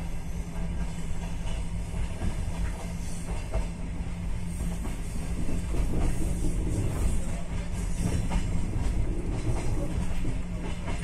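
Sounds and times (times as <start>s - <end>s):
train wheels rumbling on rails: 0.0s - 11.0s
faint rail clicks: 4.6s - 11.0s.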